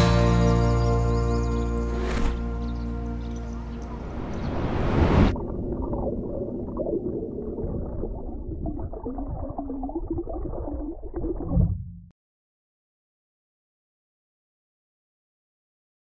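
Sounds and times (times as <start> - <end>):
muffled underwater river flowing: 3.2 - 12.1.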